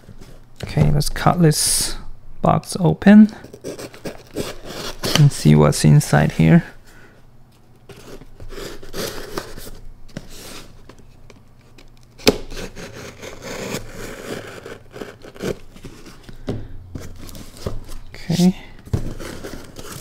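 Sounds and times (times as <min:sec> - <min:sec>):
knife slicing packing tape: 0:03.5 - 0:05.3, 0:08.0 - 0:09.6, 0:12.2 - 0:15.7
tape and cardboard tearing: 0:03.5 - 0:05.4, 0:07.9 - 0:10.8, 0:11.6 - 0:16.2, 0:19.0 - 0:20.0.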